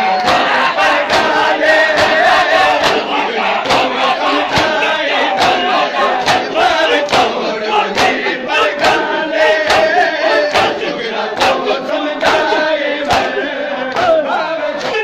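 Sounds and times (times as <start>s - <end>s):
many voices chanting a lament: 0.0s - 15.0s
hands striking chests: 1.9s - 6.5s.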